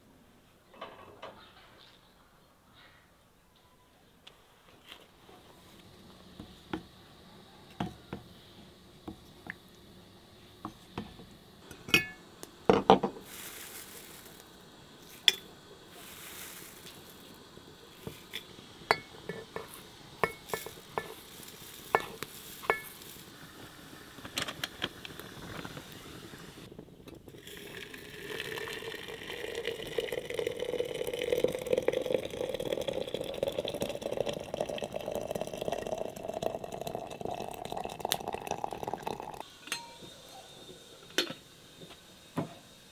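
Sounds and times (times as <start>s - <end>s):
soft hiss: 1.5s - 42.9s
dried flowers handled in metal tin: 12.8s - 23.3s.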